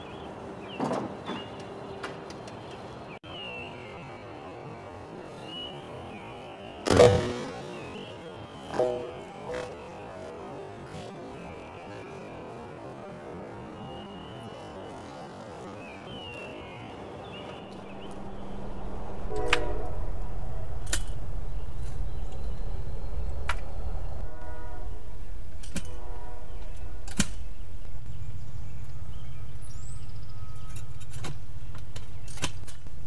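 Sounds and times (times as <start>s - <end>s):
steady low rumble: 17.6s - 32.2s.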